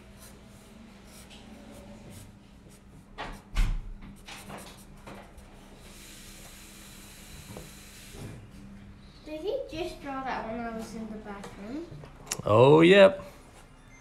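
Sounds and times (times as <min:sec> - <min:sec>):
pencil scratching on paper: 0:00.0 - 0:05.8.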